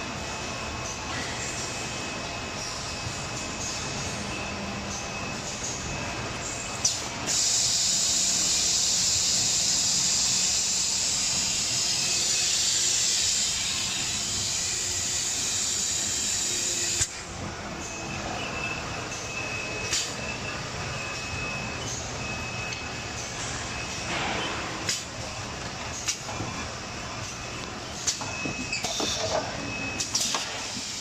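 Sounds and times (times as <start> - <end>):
machine high whine: 0.0 - 31.0
compressed air hiss: 7.3 - 11.4.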